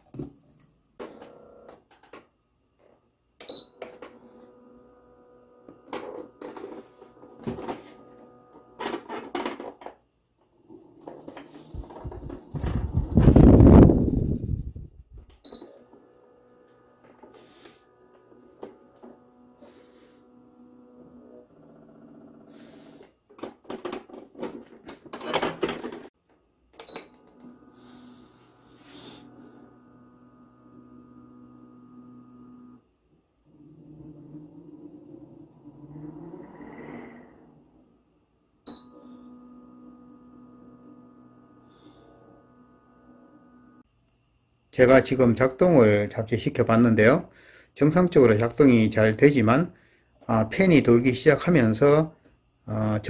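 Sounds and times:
air cooler humming: 0:11.6 - 0:23.3, 0:27.2 - 0:32.3.

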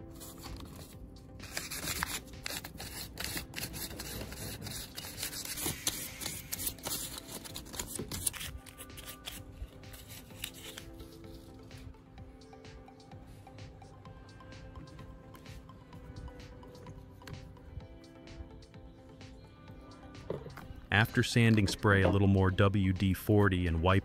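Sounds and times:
quiet background music: 0:00.0 - 0:24.0
sandpaper scratching metal: 0:01.4 - 0:09.3.

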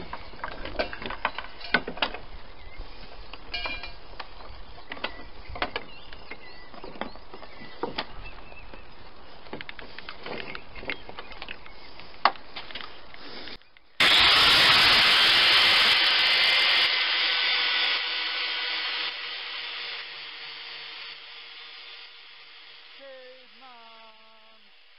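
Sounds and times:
tool handling clicks and knocks: 0:00.0 - 0:02.2
angle grinder grinding steel: 0:14.0 - 0:24.9.

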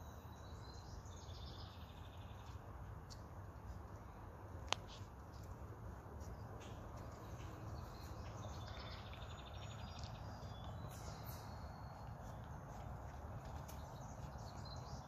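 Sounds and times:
distant bird chirps: 0:06.2 - 0:15.0.

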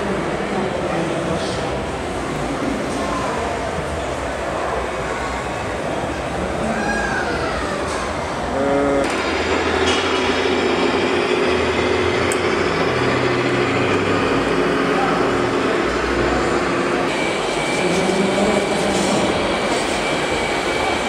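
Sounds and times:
exhibition hall background: 0:00.0 - 0:21.0
rc model vehicles running: 0:08.5 - 0:21.0.

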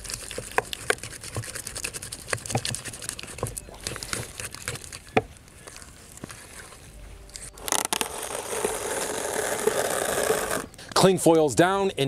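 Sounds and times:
butter squishing in a bowl: 0:00.0 - 0:06.8
cling wrap crinkling: 0:00.0 - 0:10.7.

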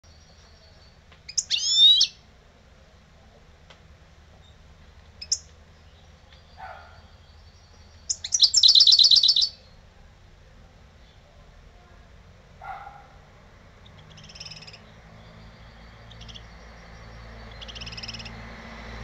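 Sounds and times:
goldfinch singing: 0:00.1 - 0:02.2, 0:04.4 - 0:09.8, 0:13.8 - 0:18.6.

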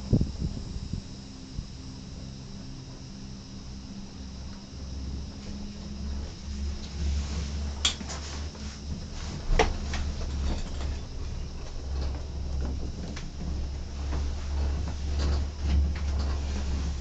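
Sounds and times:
cable car cabin rumble: 0:00.0 - 0:17.0
knocks and rattles: 0:08.9 - 0:17.0.

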